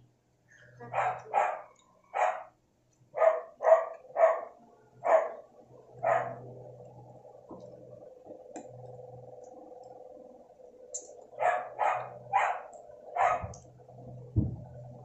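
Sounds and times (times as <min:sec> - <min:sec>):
dog barking: 0:00.9 - 0:05.4, 0:06.0 - 0:06.4, 0:11.4 - 0:13.6.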